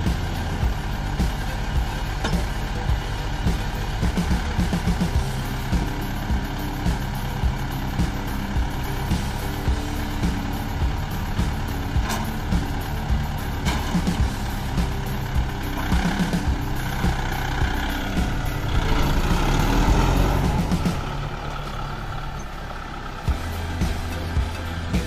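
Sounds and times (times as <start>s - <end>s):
tractor diesel engine running: 0.0s - 25.0s.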